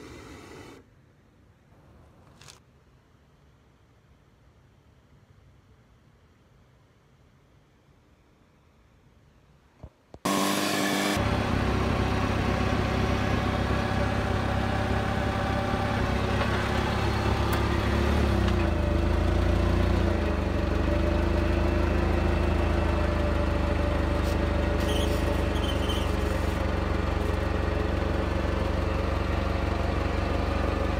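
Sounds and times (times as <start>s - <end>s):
forklift engine running: 10.3s - 30.9s.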